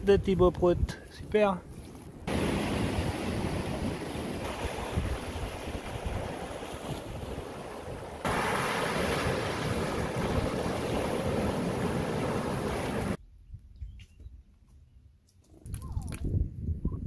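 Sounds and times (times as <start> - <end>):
sea surf: 2.3 - 13.2
wind on microphone: 2.3 - 13.2, 15.6 - 17.0.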